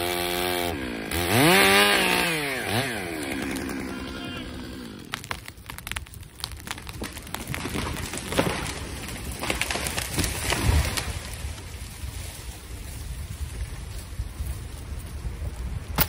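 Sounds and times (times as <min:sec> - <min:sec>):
wood cracking and snapping: 0:01.4 - 0:12.4
tree trunk thudding on ground: 0:05.1 - 0:11.5.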